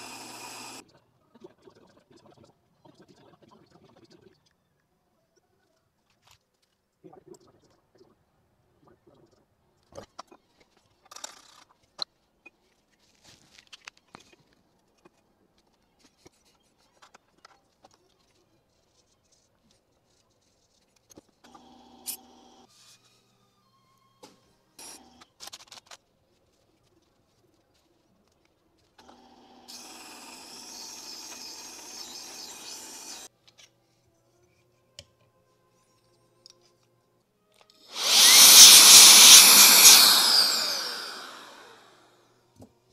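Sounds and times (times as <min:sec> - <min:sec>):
scratchy rustles: 0:12.8 - 0:14.4.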